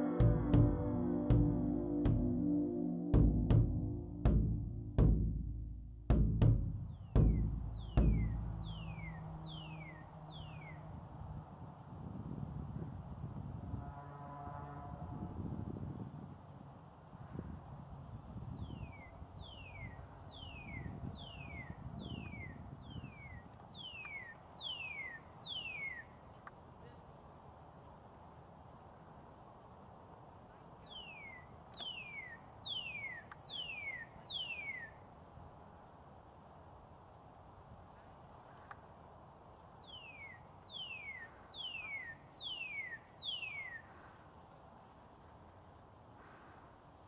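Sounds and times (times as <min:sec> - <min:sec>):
cardinal singing whistled notes: 0:06.9 - 0:10.8, 0:18.8 - 0:26.2, 0:30.9 - 0:35.0, 0:39.9 - 0:43.8.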